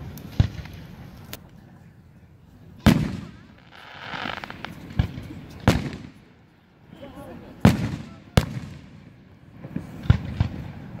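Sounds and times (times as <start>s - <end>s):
fireworks rumble: 0.0s - 11.0s
fireworks bangs: 2.8s - 6.4s, 7.5s - 11.0s.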